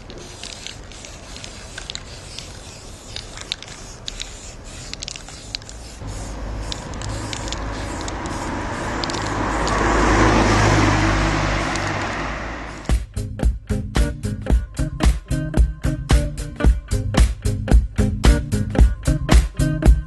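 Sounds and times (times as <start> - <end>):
spray paint can hisses and clicks: 0.0 - 13.1, 16.1 - 20.0
car passing close by: 6.0 - 12.9.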